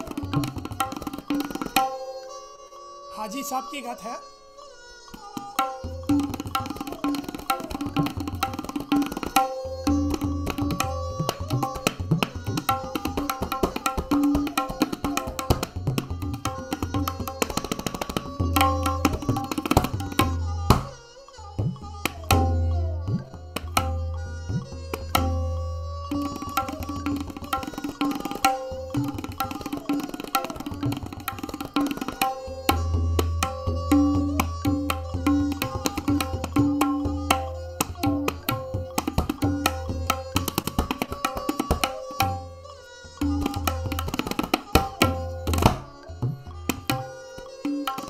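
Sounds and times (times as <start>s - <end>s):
tabla drumming: 0.0s - 2.3s, 5.1s - 48.0s.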